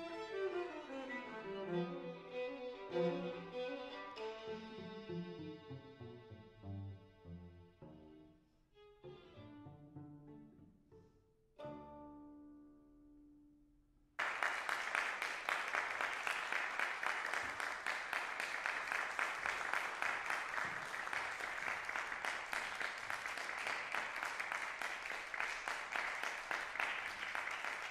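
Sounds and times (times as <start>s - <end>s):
violin and cello chord: 0.0s - 8.3s
audience applause: 14.2s - 27.9s.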